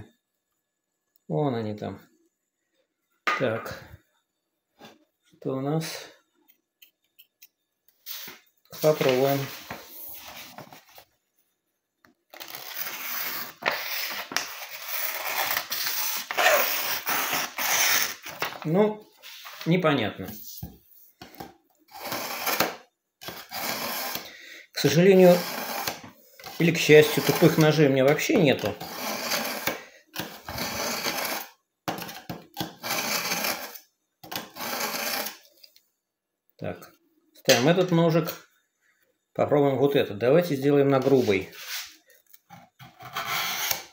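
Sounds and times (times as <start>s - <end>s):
knife cutting paper: 12.4s - 18.5s, 21.9s - 24.3s, 25.1s - 27.9s, 28.7s - 35.4s.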